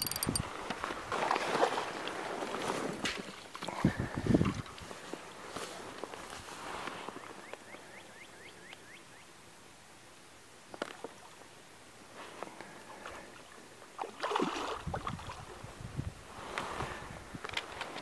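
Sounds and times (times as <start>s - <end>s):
rod and reel handling: 0.0s - 0.4s.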